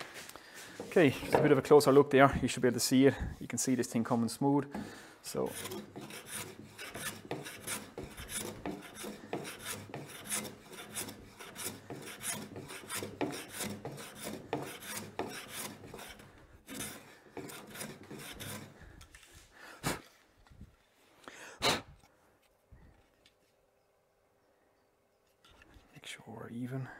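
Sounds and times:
hand plane rasping through wood: 4.8s - 18.8s.

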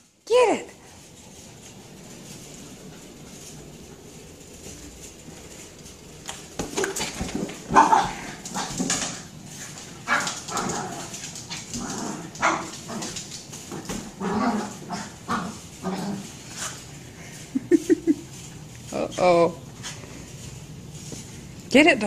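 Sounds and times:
small dog barking: 7.7s - 8.2s.

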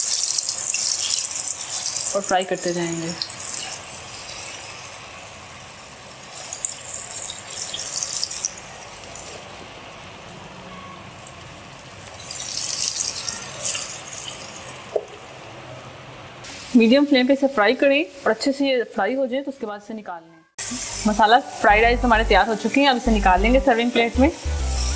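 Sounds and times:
oil crackling: 0.0s - 5.2s, 6.2s - 9.5s, 11.2s - 15.0s
food deep-frying in oil: 0.0s - 15.5s.

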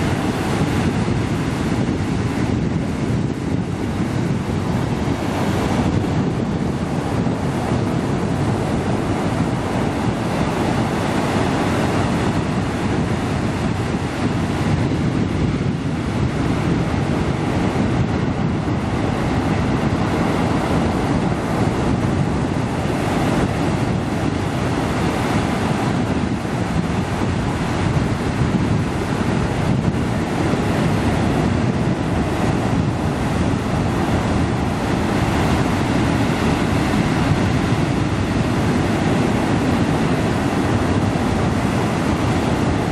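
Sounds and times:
ocean surf roaring over rocks: 0.0s - 42.9s.

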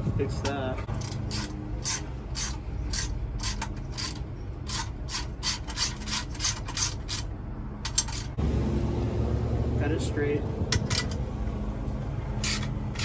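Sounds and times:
ratchet wrench clicking: 0.9s - 8.4s, 12.4s - 13.0s.

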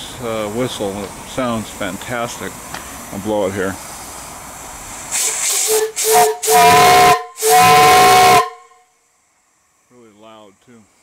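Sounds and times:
steam hissing: 0.0s - 11.0s
steam whistle blasts: 5.1s - 9.0s.

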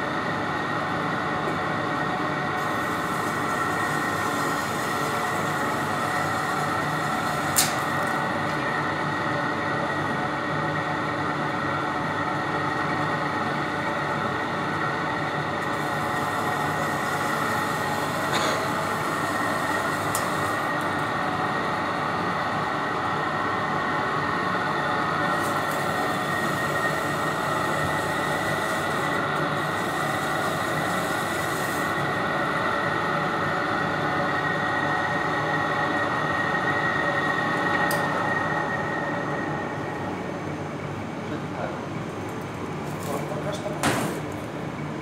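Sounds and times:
kitchen equipment whirring: 2.5s - 9.9s, 14.8s - 34.4s.

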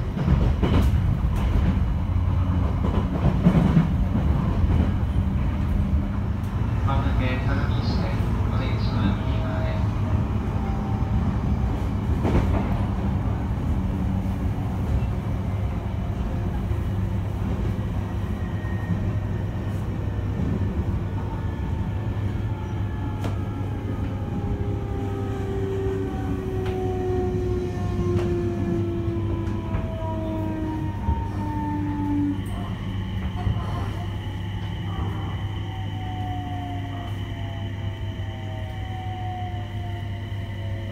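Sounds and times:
train wheels rumbling on rail: 0.0s - 40.9s.

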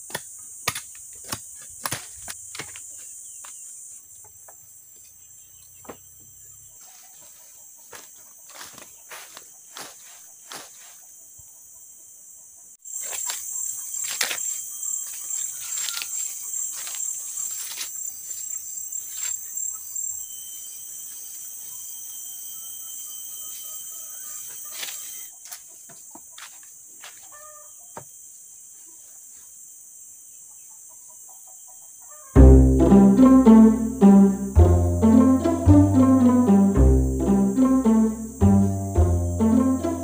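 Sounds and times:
high-pitched insect drone: 20.0s - 25.2s.

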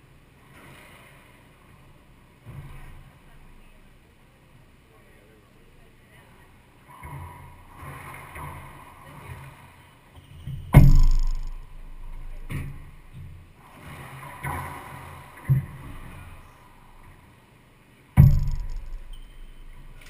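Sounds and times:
racquet hitting ball: 18.2s - 19.2s.

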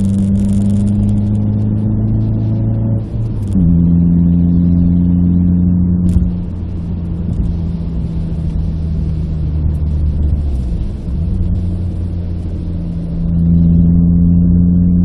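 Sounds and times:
car engine under way: 0.0s - 15.0s
road noise: 0.0s - 15.0s.

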